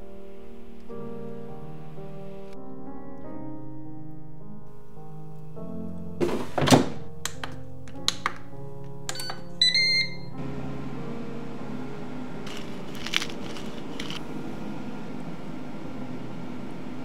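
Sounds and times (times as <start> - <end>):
button clicks: 9.1 - 10.3
electronic beep: 9.1 - 10.4.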